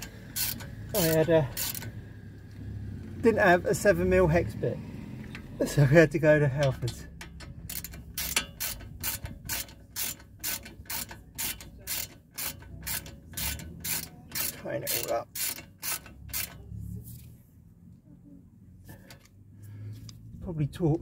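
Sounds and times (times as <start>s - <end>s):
hand ratchet clicking: 0.0s - 2.0s, 6.6s - 16.6s.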